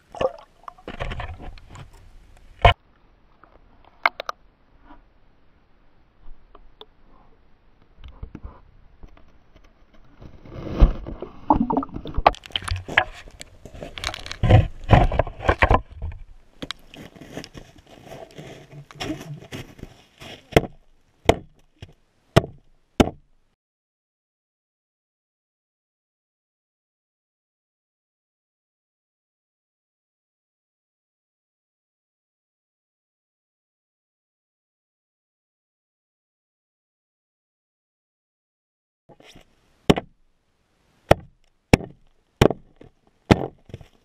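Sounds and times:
water sloshing: 0.0s - 2.0s, 10.6s - 19.8s.

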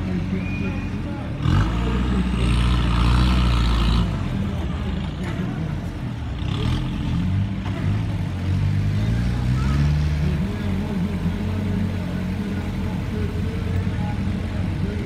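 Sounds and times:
buggy engine revving: 0.0s - 15.0s.

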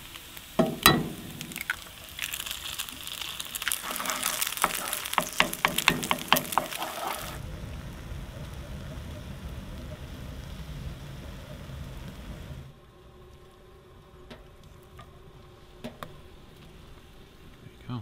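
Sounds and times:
food sizzling in a skillet: 0.0s - 12.8s
wooden spatula clicking in pan: 4.6s - 7.2s
steady low rumble: 7.4s - 18.0s.

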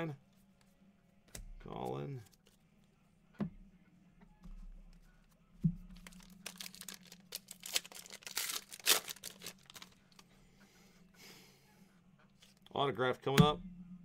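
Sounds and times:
foil wrapper tearing and crinkling: 6.0s - 10.2s.

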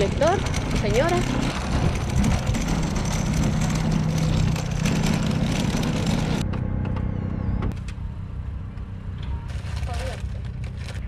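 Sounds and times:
shopping cart rattling on asphalt: 0.0s - 6.4s, 9.5s - 11.0s
background hum: 0.0s - 11.0s.

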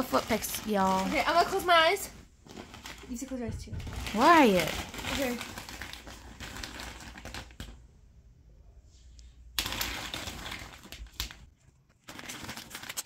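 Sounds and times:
plastic markers clattering: 3.8s - 7.8s, 9.6s - 13.0s.

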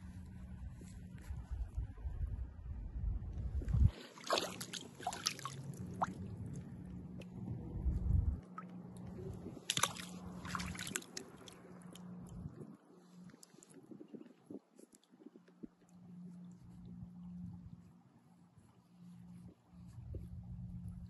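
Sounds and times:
water sloshing and splashing: 3.6s - 7.2s, 8.4s - 17.4s.

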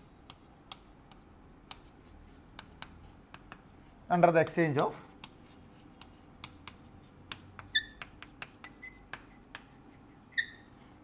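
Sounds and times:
chalk scratching on blackboard: 0.0s - 11.0s
high chalk squeaks: 6.5s - 11.0s.

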